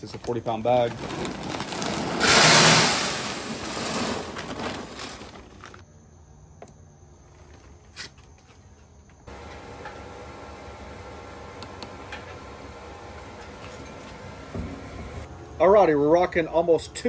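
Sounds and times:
pellets pouring into metal hopper: 0.0s - 5.8s
plastic bag rustling: 0.0s - 5.8s.

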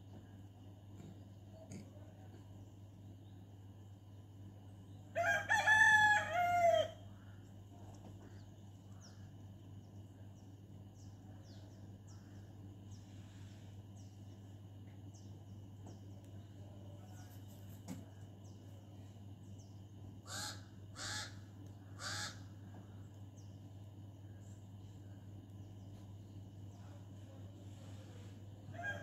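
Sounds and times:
steady low hum: 0.0s - 29.0s
rooster crowing: 5.1s - 7.1s, 28.7s - 29.0s.

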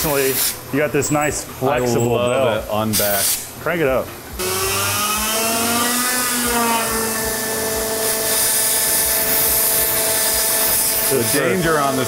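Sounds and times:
belt grinder running: 4.3s - 12.0s.

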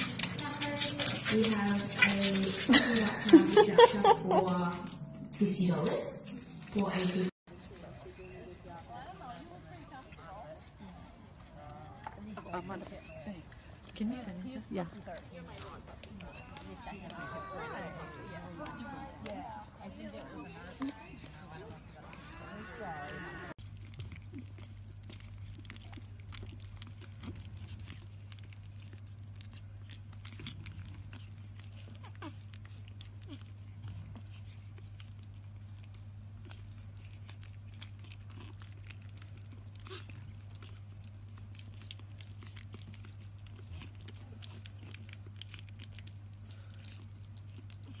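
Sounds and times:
puppies licking wet smacks: 0.0s - 4.6s, 23.6s - 48.0s.

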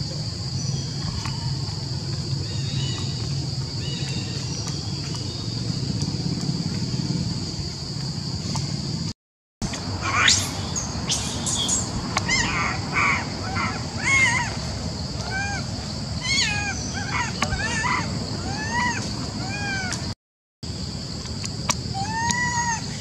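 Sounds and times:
forest background hiss: 0.0s - 23.0s
monkeys screaming: 9.9s - 20.1s, 21.9s - 23.0s.

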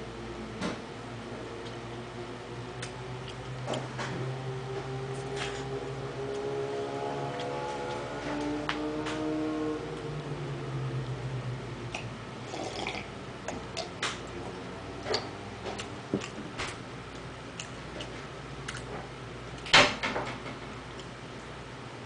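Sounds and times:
eating clicks and smacks: 15.0s - 19.9s, 20.9s - 21.5s.

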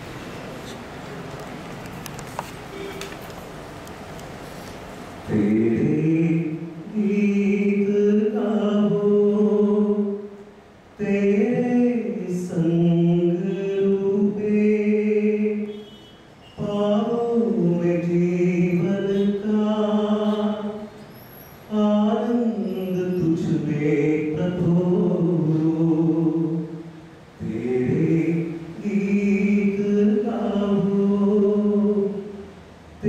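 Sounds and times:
man singing: 5.3s - 10.3s, 11.0s - 15.8s, 16.6s - 20.9s, 21.7s - 26.8s, 27.4s - 32.4s.

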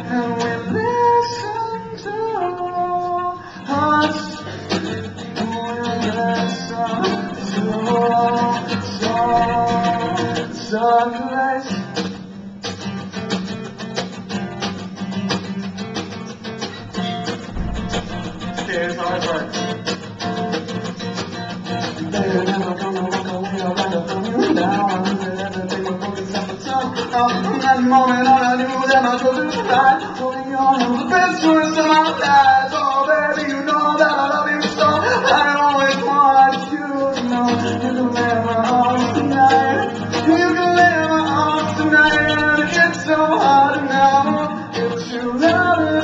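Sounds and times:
acoustic guitar strumming: 0.0s - 46.0s
man singing long notes: 5.4s - 11.8s, 22.0s - 46.0s.

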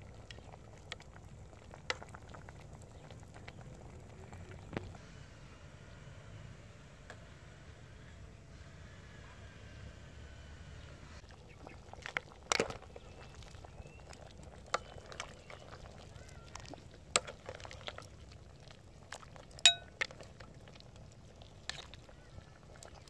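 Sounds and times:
metal ladle clinking on pot and bowl: 19.7s - 20.0s.

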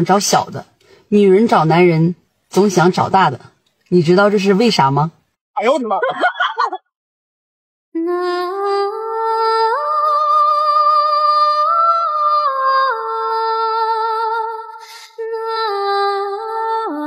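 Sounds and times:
short breath: 0.8s - 1.1s, 14.8s - 15.2s
woman humming a slow melody: 8.0s - 17.0s.

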